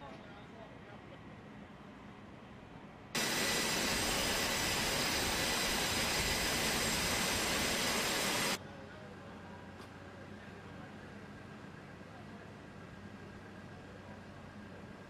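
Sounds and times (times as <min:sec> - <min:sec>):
faint steady whine: 0:02.8 - 0:15.0
jet engines rushing: 0:03.2 - 0:08.6.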